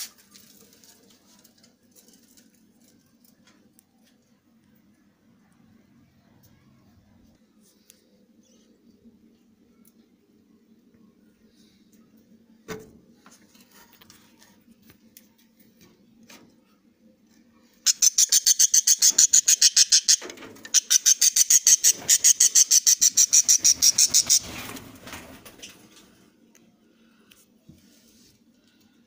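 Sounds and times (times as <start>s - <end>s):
thump: 12.7s - 13.0s
budgerigar chirping rapidly: 17.9s - 20.2s, 20.8s - 24.5s.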